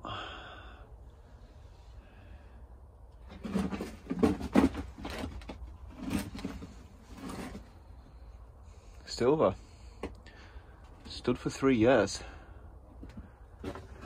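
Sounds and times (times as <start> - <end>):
knocks and scraping thuds of bricks: 3.2 - 8.9, 12.2 - 14.0.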